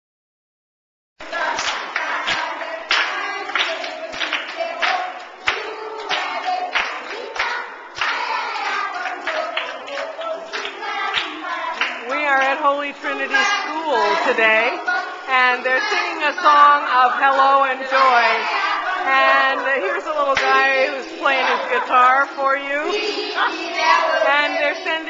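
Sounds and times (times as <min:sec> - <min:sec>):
children singing together: 0:01.2 - 0:25.0
children clapping hands: 0:01.4 - 0:12.6, 0:20.3 - 0:20.6.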